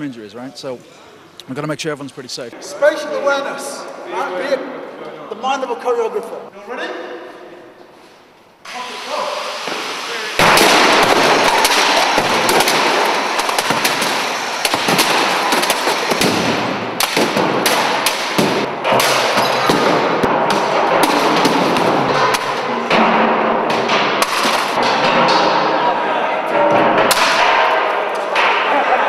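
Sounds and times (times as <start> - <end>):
loud continuous din: 10.3 - 29.0
appliances being smashed: 10.4 - 25.7.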